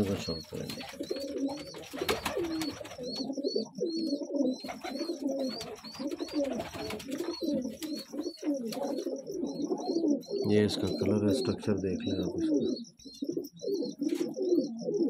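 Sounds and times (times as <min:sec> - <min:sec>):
faint high chirp: 0:00.0 - 0:15.0
pigeons cooing: 0:00.0 - 0:15.0.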